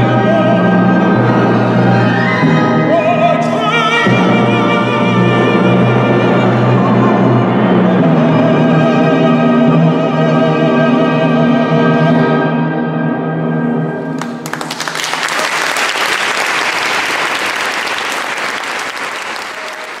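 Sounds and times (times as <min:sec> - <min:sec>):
audience applause: 0:14.2 - 0:20.0.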